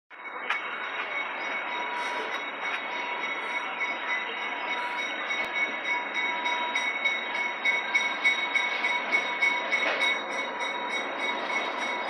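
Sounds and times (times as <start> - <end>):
steady high squeal: 0.1 - 12.0
train running noise: 0.1 - 12.0.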